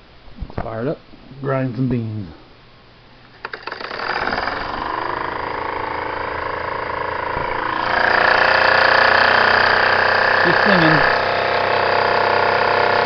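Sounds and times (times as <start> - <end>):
small steam engine running: 3.4 - 13.0.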